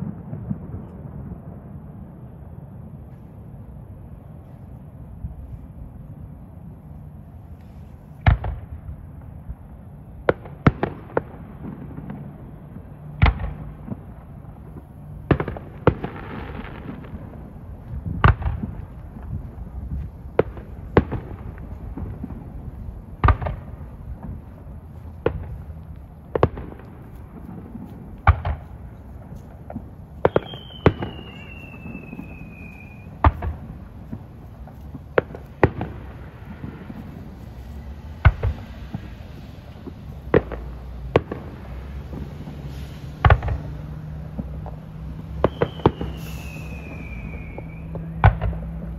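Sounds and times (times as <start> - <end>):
fireworks bursting: 0.0 - 1.8, 2.8 - 48.9
descending firework whistle: 30.2 - 34.2, 42.4 - 43.9, 45.2 - 48.9.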